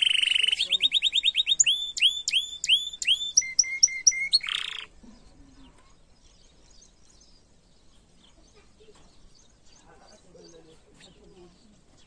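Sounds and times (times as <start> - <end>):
canary singing: 0.0 - 5.0.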